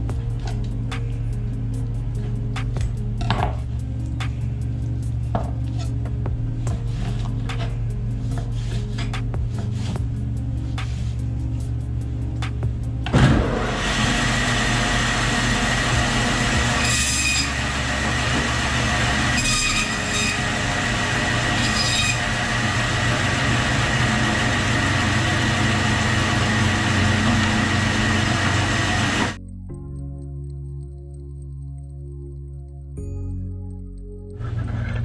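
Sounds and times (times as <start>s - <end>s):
bandsaw whine cutting bone: 13.1s - 29.4s.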